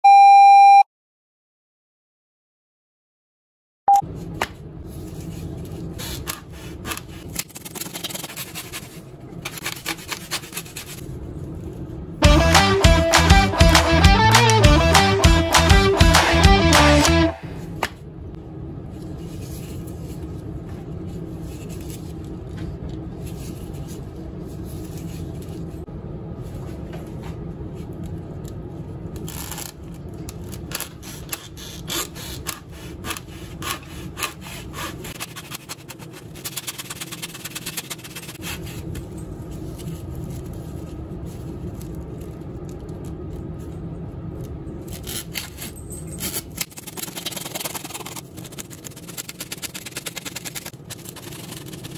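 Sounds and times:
hacksaw cutting through foam: 31.0s - 38.4s.

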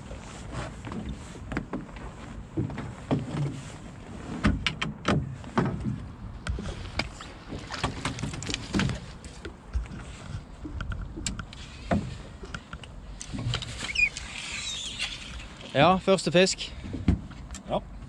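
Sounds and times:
knocks and clatter on boat: 0.0s - 13.9s, 16.7s - 18.0s
water slapping against boat hull: 0.8s - 14.2s.

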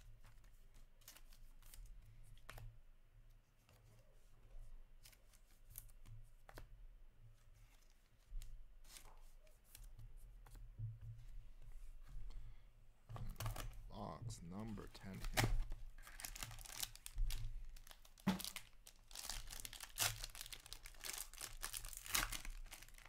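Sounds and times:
trading cards clicking and rustling: 13.1s - 23.0s.

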